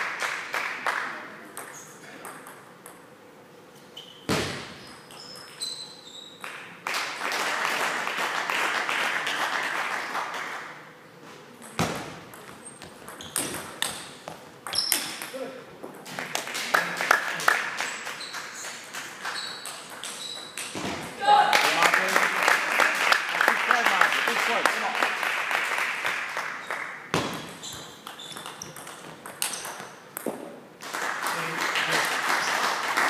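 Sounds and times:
steady background noise: 0.0 - 33.0.

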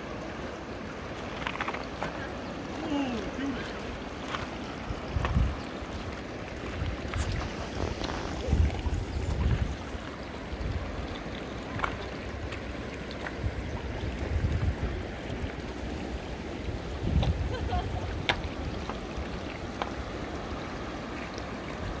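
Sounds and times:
river water trickling over stones: 0.0 - 22.0
wind on microphone: 4.3 - 12.6, 13.3 - 20.8.

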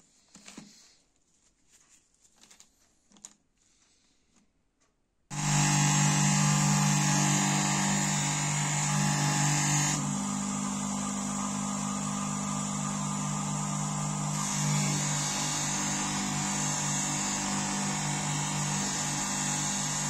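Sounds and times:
bench grinder motor hum: 5.3 - 20.0
blade hissing on polishing wheel: 5.3 - 20.0.

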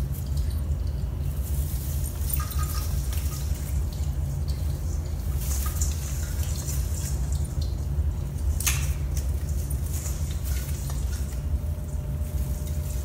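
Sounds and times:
steady low hum: 0.0 - 13.0
cat rustling in tree branches: 1.2 - 4.0, 9.2 - 13.0.

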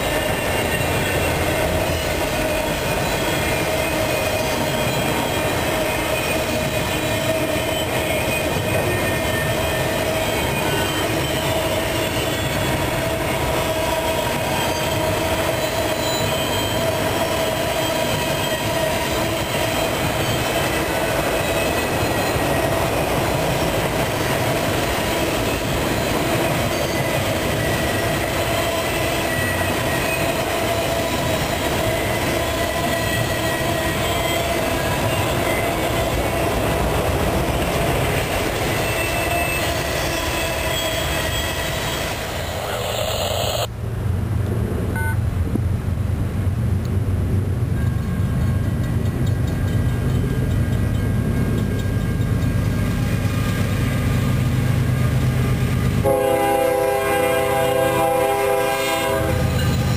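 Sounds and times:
thin squealing tones: 0.0 - 43.7
distant diesel locomotive rumble: 0.0 - 59.9
train wheels rumbling on rail: 0.0 - 59.9.

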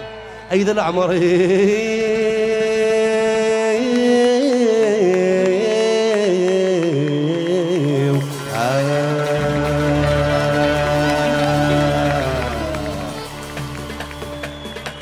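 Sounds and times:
man singing with vibrato: 0.0 - 13.6
band playing: 5.2 - 15.0.

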